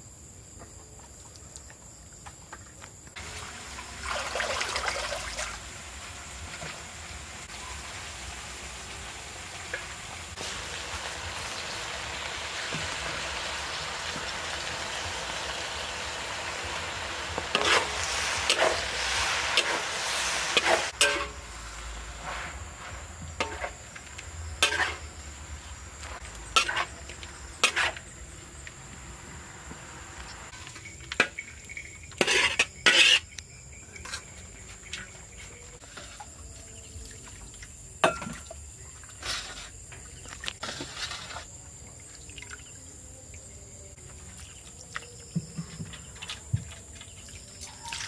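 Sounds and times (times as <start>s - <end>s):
food sizzling in a pan: 3.2s - 4.4s, 5.0s - 33.2s
utensil scraping in a pan: 17.2s - 25.2s, 26.0s - 28.2s, 30.5s - 33.4s, 35.8s - 36.3s, 39.2s - 39.8s, 40.6s - 41.5s.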